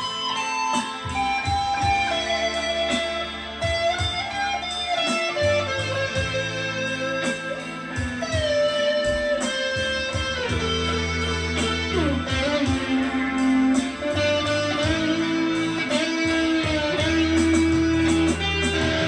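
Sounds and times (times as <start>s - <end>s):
electric guitar blues lead: 0.0s - 19.0s.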